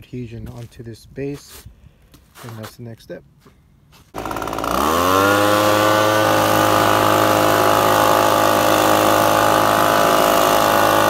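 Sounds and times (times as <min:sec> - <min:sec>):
leaf blower running: 0:04.1 - 0:11.0.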